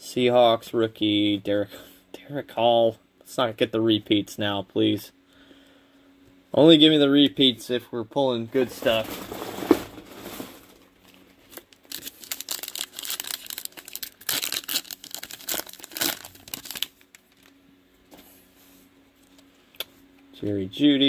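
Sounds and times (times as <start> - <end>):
foil wrapper crinkling and tearing: 8.7 - 17.6.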